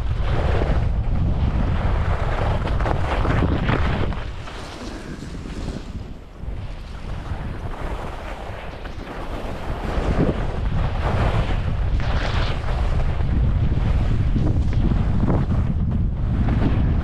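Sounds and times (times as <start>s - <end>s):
skis scraping over snow: 0.0s - 17.0s
wind buffeting microphone: 0.0s - 17.0s.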